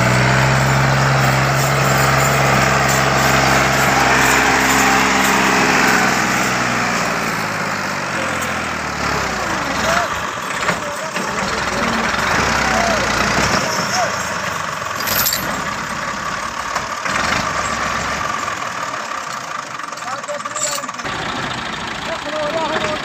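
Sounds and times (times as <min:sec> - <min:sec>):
tractor diesel engine running: 0:00.0 - 0:23.0.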